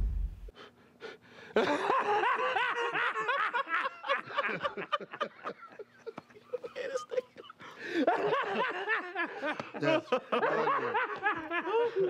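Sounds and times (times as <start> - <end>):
person giggling: 4.0 - 12.0.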